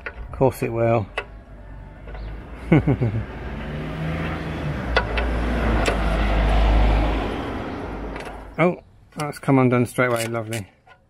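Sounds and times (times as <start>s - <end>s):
passing road vehicle: 1.2s - 8.6s.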